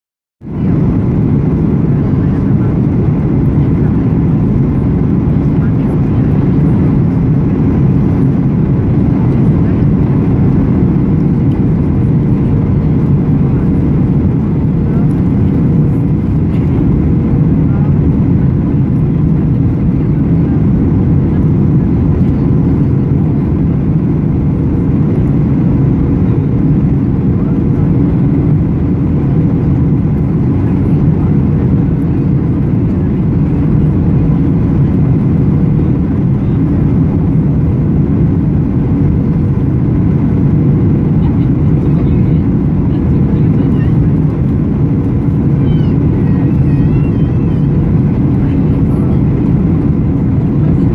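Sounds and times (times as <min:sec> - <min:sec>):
air rushing over wing: 0:00.4 - 0:50.9
loud jet engine roar: 0:00.4 - 0:50.9.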